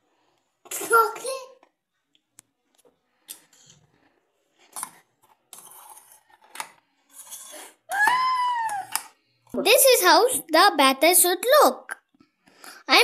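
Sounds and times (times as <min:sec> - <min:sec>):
metal spoon scraping steel jar: 0:05.5 - 0:07.9.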